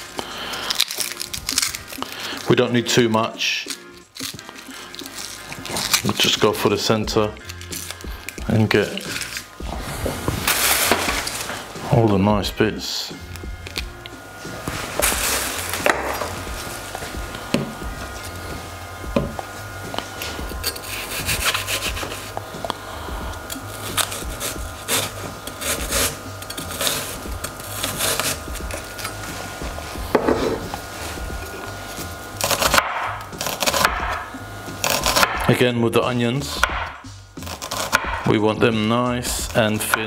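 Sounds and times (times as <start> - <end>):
knife sawing cuts: 0.0 - 12.1, 19.9 - 35.6, 36.4 - 40.0.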